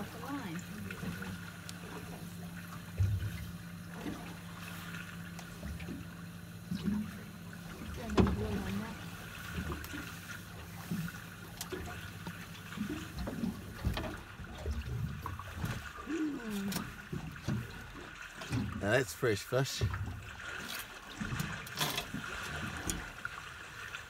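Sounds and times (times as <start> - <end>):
water lapping around boat: 0.0 - 24.0
knocks on boat: 7.9 - 8.8, 12.2 - 15.9.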